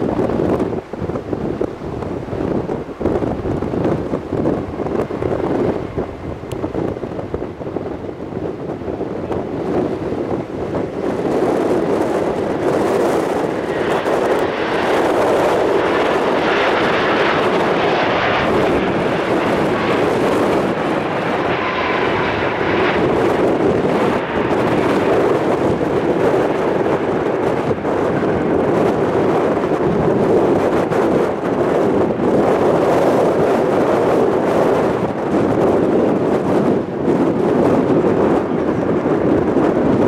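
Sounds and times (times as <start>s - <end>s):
jet engines rushing: 0.0s - 40.0s.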